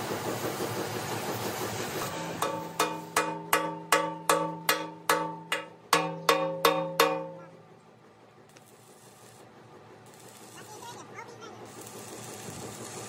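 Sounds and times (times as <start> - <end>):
hammer ringing on steel: 2.4 - 7.6.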